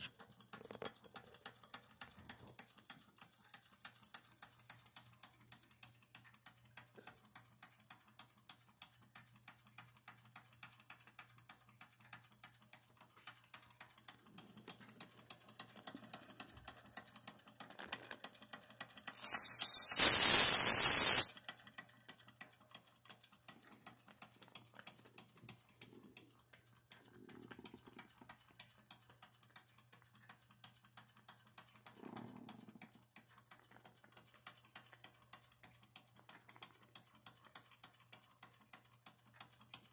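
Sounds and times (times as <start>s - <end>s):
toy steam engine ticking: 0.0s - 39.9s
steam whistle: 19.2s - 21.3s.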